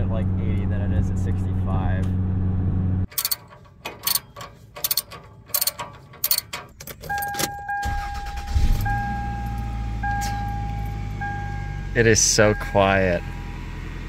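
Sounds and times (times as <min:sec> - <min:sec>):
car engine cranking and idling: 0:00.0 - 0:14.0
keys jingling: 0:03.1 - 0:08.5, 0:09.2 - 0:11.6
car warning chime: 0:07.0 - 0:14.0.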